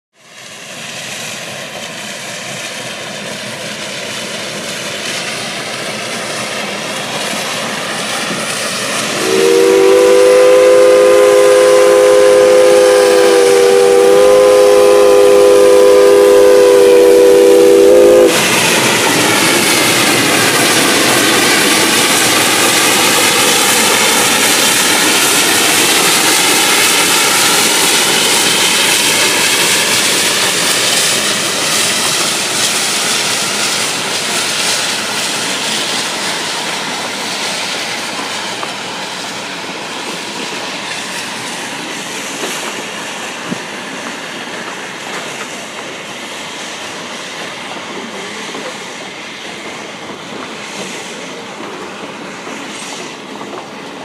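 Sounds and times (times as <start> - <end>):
passenger coaches rolling past: 0.3 - 54.0
steam chime whistle blast: 9.1 - 19.2.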